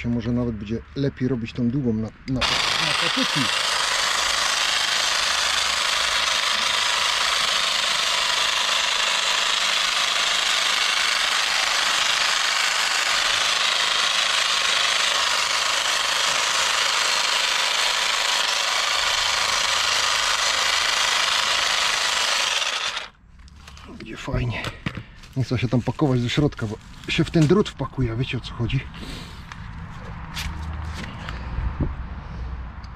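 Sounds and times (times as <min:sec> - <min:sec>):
hedge trimmer buzzing: 0:02.4 - 0:23.2.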